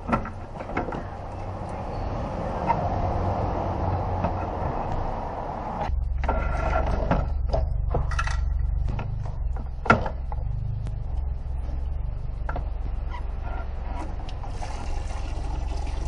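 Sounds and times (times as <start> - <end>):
low hum: 1.3 - 15.3
clicks and knocks of metal parts: 6.9 - 10.4.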